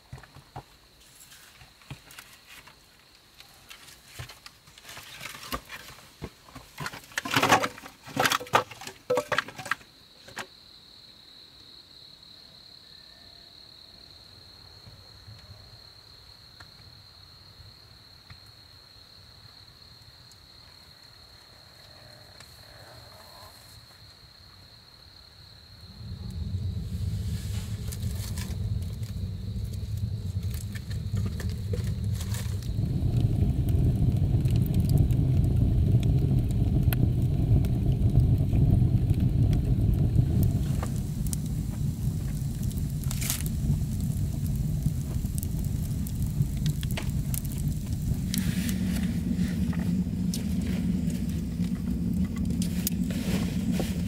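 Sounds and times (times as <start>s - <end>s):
low rumbling noise: 25.8s - 54.0s.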